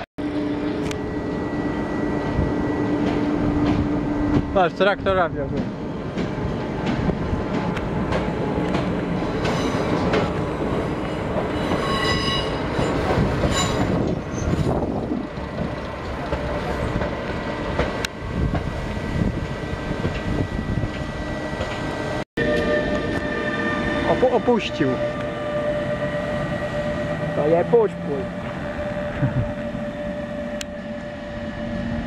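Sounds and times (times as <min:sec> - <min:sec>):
electric locomotive humming: 0:00.0 - 0:32.0
rail trolley wheels clattering: 0:01.3 - 0:23.4
high squeal: 0:11.1 - 0:14.8.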